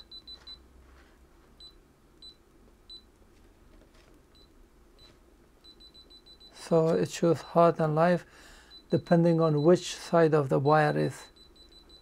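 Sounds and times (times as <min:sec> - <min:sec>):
short high multimeter beeps: 0:04.4 - 0:06.6, 0:11.2 - 0:12.0.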